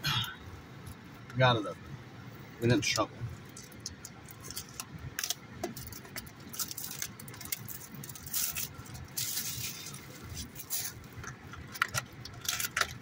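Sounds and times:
plastic wrappers crinkling: 3.4s - 13.0s.

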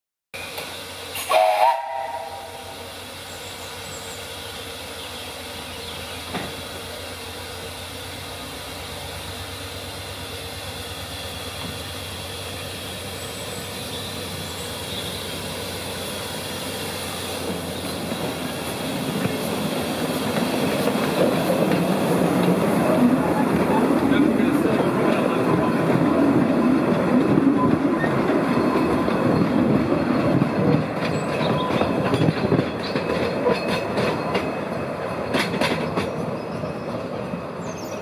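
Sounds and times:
steam hissing: 0.4s - 33.0s
steam locomotive whistle: 1.1s - 2.9s.

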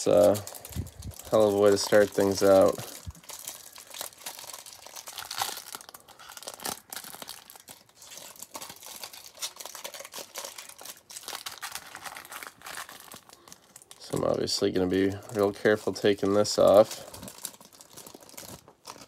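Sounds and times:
plastic wrapping crinkling: 0.0s - 19.0s.

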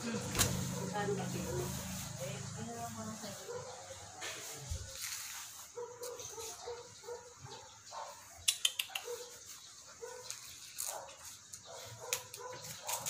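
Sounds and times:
sharp clicks: 8.4s - 9.1s.

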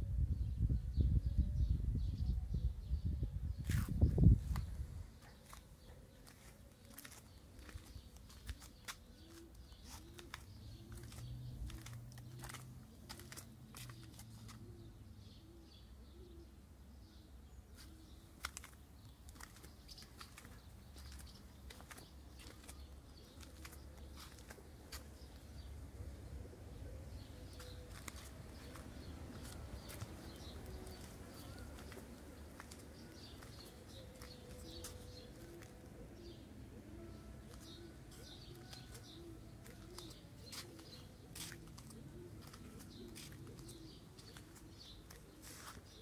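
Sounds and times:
small birds chirping: 3.0s - 46.0s
low cooing: 33.2s - 45.6s.

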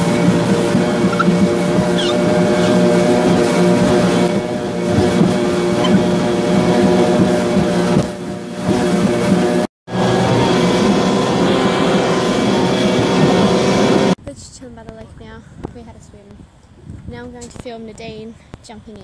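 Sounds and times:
outboard motors running: 0.0s - 14.2s
rush of wind and water: 0.0s - 14.2s.

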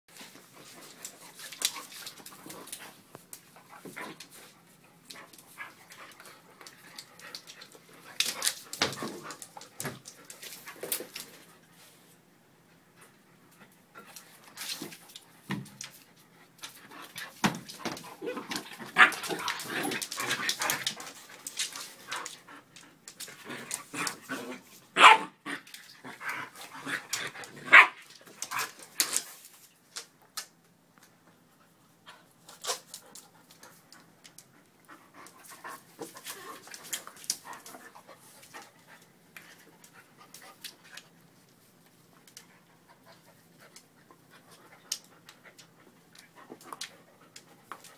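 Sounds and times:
dog barking: 25.0s - 25.3s.

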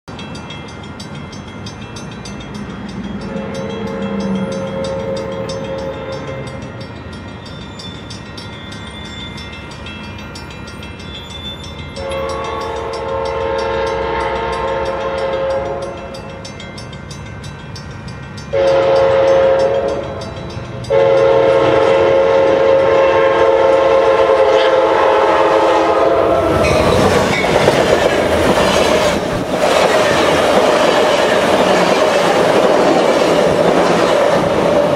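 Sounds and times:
railroad crossing bells ringing: 0.1s - 34.9s
train wheels rushing on rails: 0.1s - 34.9s
train horn blasts: 3.2s - 6.6s, 12.0s - 16.2s, 18.5s - 20.3s, 20.9s - 27.0s.

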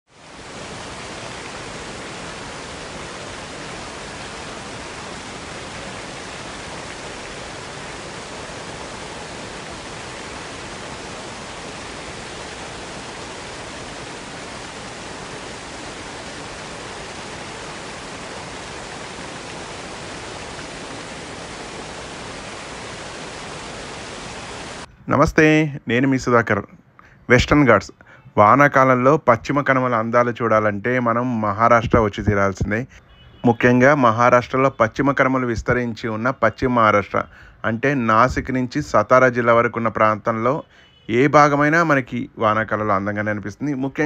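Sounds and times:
falling water rushing: 0.1s - 24.9s.

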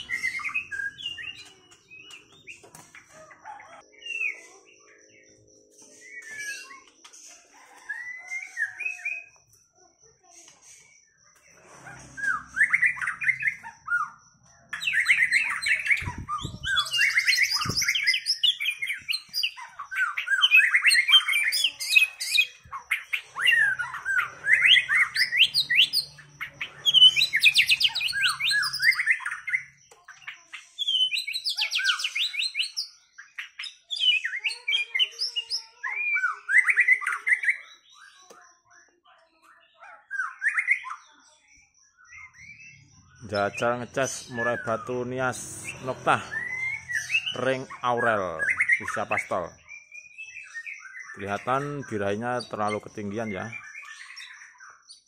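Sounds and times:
bird singing whistles: 7.6s - 9.4s, 14.8s - 26.1s.

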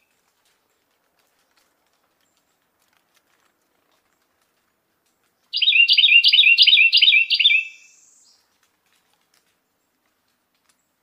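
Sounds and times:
wren singing: 5.5s - 8.4s.

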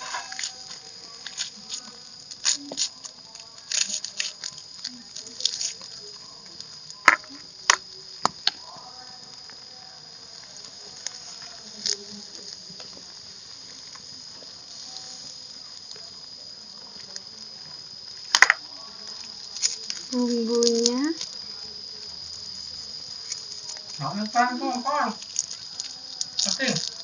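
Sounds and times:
high-pitched insect drone: 0.0s - 27.0s.

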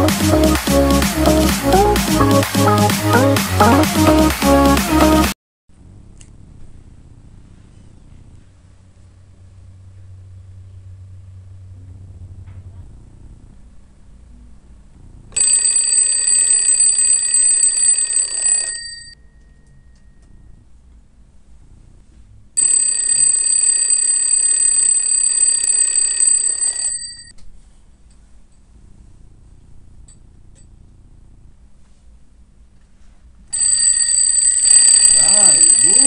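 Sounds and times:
alarm clock ringing: 15.4s - 19.2s, 22.6s - 27.3s, 33.6s - 36.0s.

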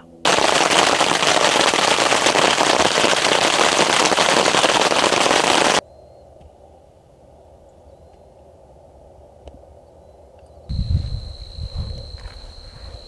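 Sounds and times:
dense steady crackling: 0.3s - 5.8s.

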